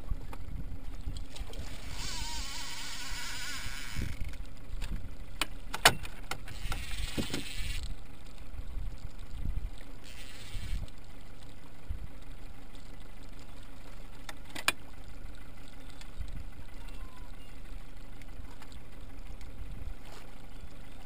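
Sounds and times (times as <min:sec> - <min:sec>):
wind and water rumble: 0:00.0 - 0:21.0
fishing reel drag buzzing: 0:01.3 - 0:04.5, 0:06.4 - 0:08.1, 0:09.9 - 0:11.5.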